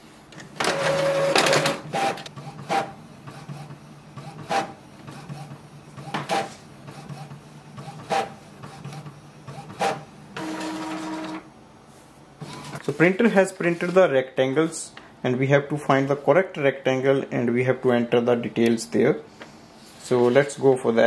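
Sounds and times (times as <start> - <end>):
printer motor whir: 0.4 - 11.5
print head carriage sweeping: 0.4 - 14.9.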